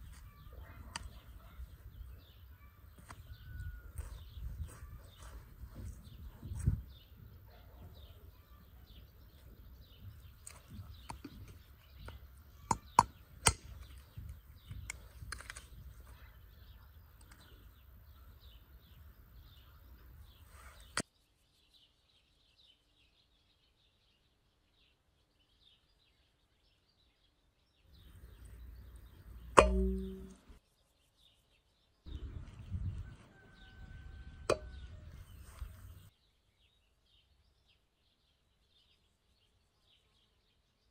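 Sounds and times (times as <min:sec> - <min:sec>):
birds chirping: 0:00.0 - 0:40.9.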